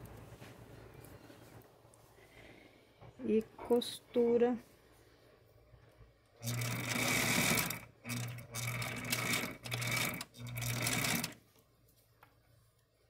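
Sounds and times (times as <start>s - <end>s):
sewing machine stitching: 6.4s - 11.4s.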